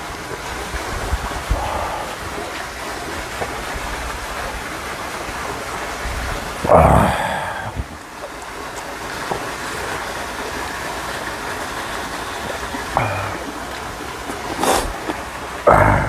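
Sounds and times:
water rushing: 0.0s - 16.0s
short voice sound: 13.0s - 13.5s.

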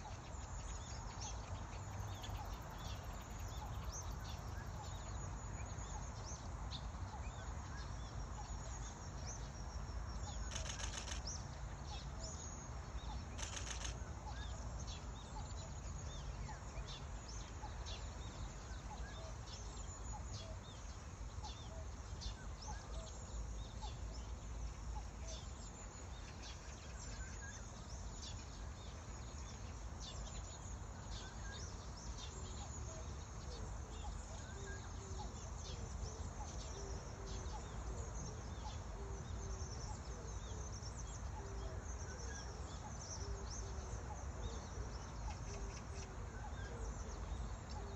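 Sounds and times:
small birds chirping: 0.0s - 47.9s
brief crackles: 10.5s - 11.4s, 13.3s - 14.0s.

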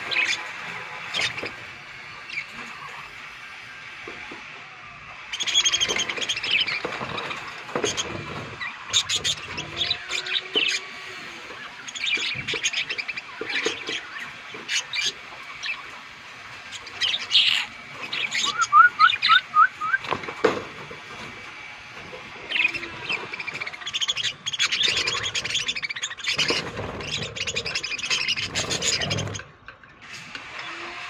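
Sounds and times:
budgerigars chattering and chirping: 5.3s - 20.1s, 22.4s - 29.5s.

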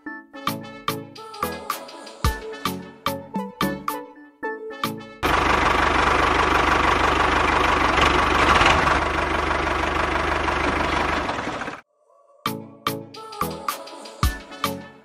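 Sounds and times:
tractor engine chugging: 5.2s - 11.8s.

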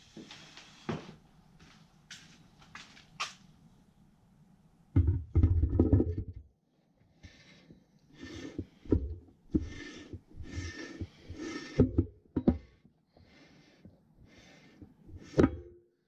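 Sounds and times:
person breathing heavily: 7.0s - 11.9s, 12.5s - 15.4s.

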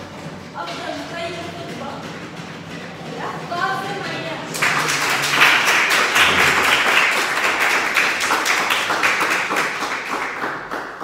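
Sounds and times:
audience applauding: 4.5s - 11.0s.

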